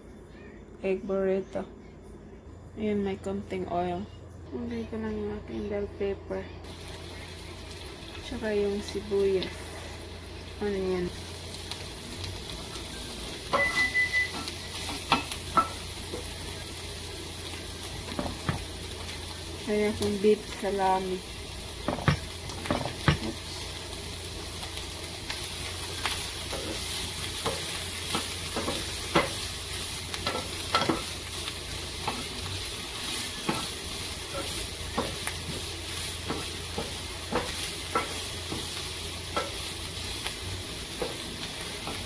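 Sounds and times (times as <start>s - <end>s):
food sizzling in oil: 6.6s - 42.0s
wooden spatula tapping pan: 36.2s - 38.7s.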